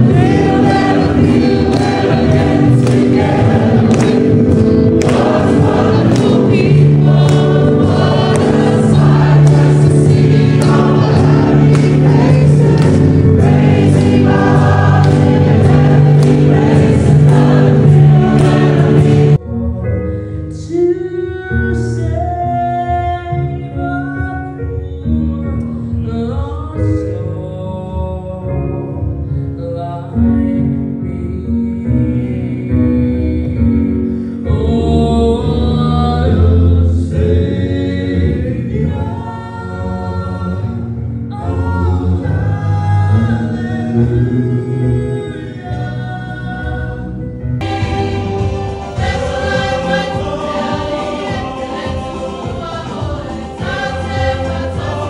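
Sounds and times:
large group singing gospel: 0.0s - 19.4s, 34.5s - 55.0s
small group singing into microphones: 0.0s - 19.5s, 30.1s - 55.0s.

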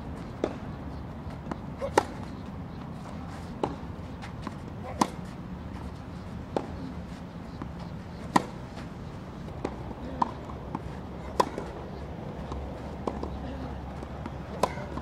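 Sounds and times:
racket hitting tennis ball: 0.4s - 13.3s, 13.9s - 15.0s.

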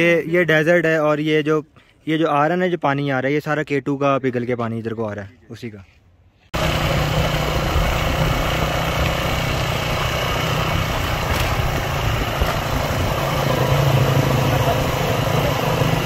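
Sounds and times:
motorcycle engine running: 6.6s - 16.0s
wind and road rush: 6.6s - 16.0s.

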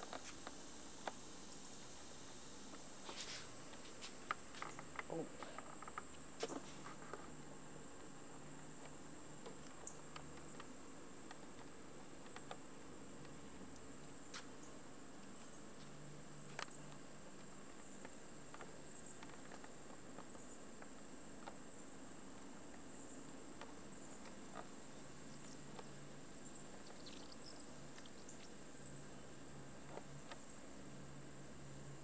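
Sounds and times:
insects trilling: 0.0s - 32.0s.

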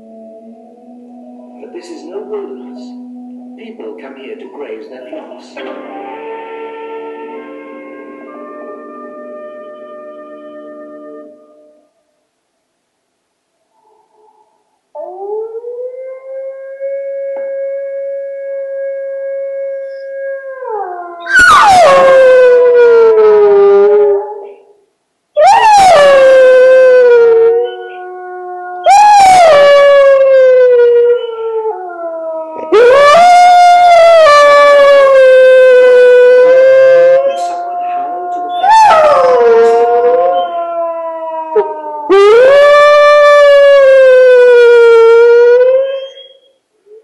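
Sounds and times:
dog howling: 15.0s - 24.6s, 25.4s - 46.4s
wolf howl: 15.0s - 24.6s, 25.4s - 47.0s.

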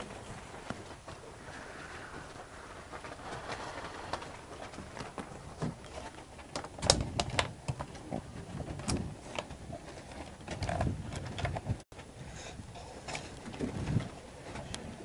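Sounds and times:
sharp clicks and knocks: 4.1s - 11.8s.

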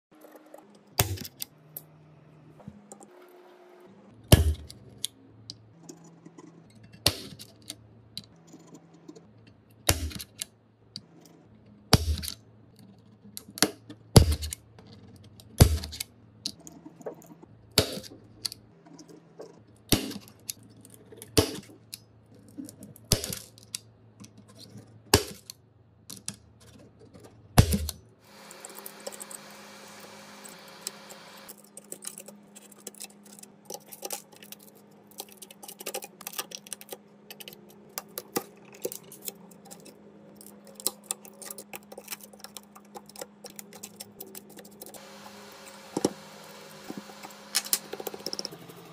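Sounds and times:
steady hum: 28.2s - 48.9s.

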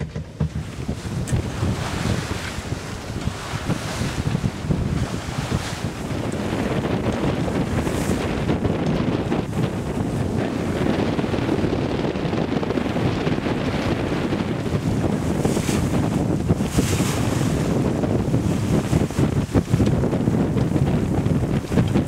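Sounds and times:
water splashing along boat hull: 0.0s - 22.0s
wind buffeting microphone: 0.0s - 22.0s.

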